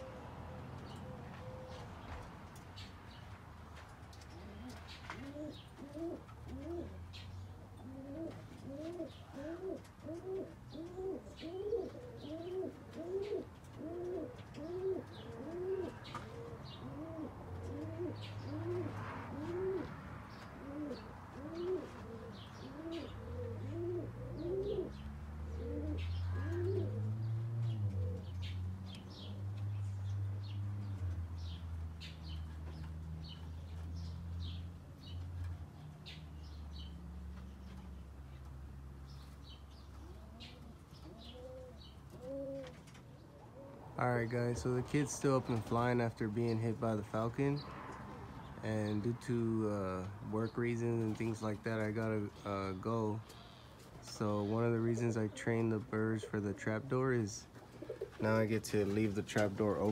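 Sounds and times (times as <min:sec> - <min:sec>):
pigeon cooing: 0:00.0 - 0:02.1, 0:04.3 - 0:30.6, 0:39.8 - 0:45.7, 0:57.6 - 0:58.5
small birds chirping: 0:00.0 - 0:59.9.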